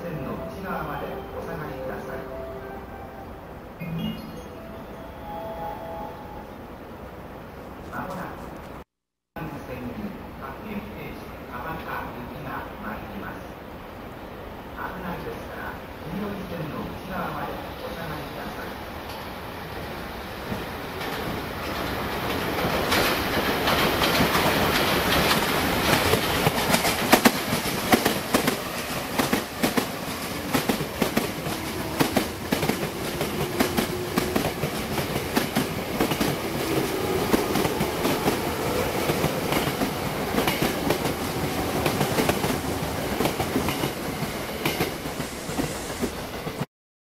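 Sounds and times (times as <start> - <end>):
train rolling rumble: 11.3 - 46.7
train wheels clacking over rail joints: 21.0 - 45.0.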